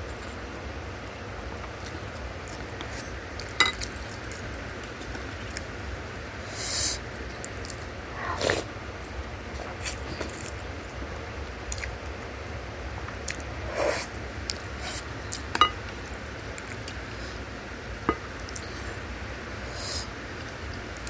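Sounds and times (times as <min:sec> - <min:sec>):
wet chewing: 0:01.6 - 0:05.7, 0:07.2 - 0:10.7.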